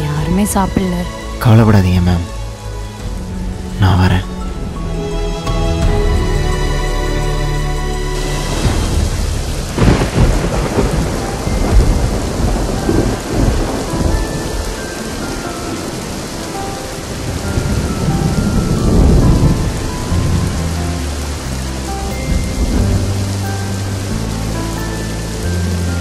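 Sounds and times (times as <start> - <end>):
heavy rain hissing: 0.0 - 26.0
rolling thunder: 8.2 - 25.0.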